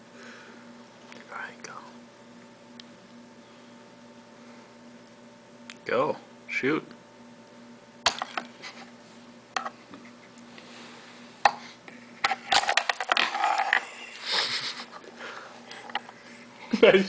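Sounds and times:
balls rolling: 12.2 - 14.0
pool balls clicking: 12.2 - 14.0.

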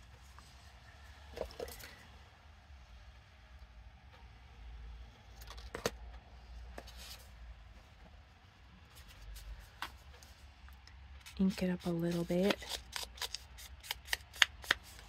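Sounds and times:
low steady hum: 0.0 - 15.0
scissors snipping paper: 11.2 - 15.0.

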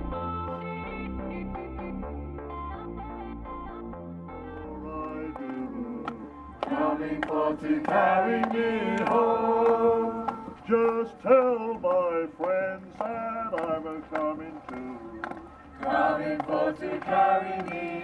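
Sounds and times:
electronic background music: 0.0 - 8.2
group of voices singing: 4.6 - 18.0.

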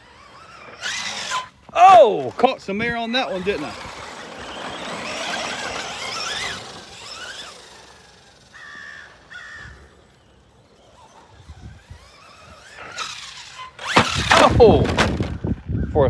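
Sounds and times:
electric motor whining: 0.0 - 15.5
crow cawing: 8.5 - 9.9.

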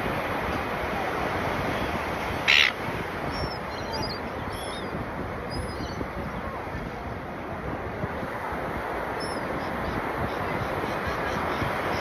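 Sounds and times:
surf: 0.0 - 12.0
wind on microphone: 0.0 - 12.0
gull squawk: 2.4 - 2.8
distant high bird calls: 2.4 - 4.9.

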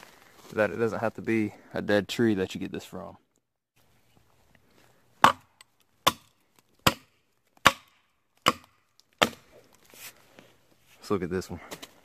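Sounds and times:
hatchet chopping wood: 5.2 - 9.6.

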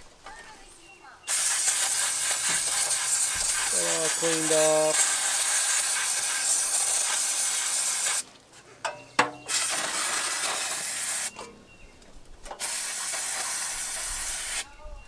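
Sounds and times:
aerosol spray hissing: 1.3 - 8.2, 9.5 - 11.3, 12.6 - 14.7.

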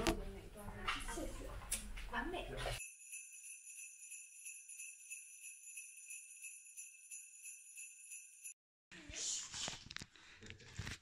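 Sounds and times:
jingle bells shaken: 2.8 - 8.6.

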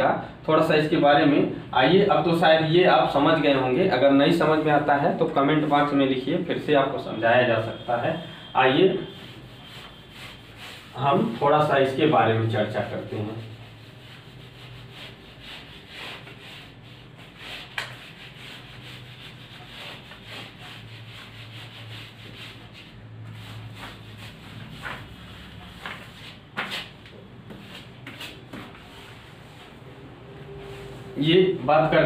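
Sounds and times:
duster rubbing on whiteboard: 7.7 - 31.2.

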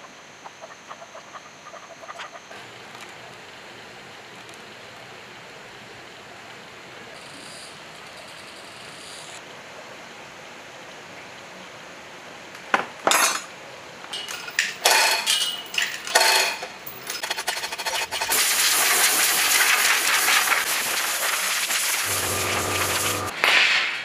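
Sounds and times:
metal chain clinking and rattling: 14.2 - 18.2
loud steady hiss: 17.8 - 24.0.

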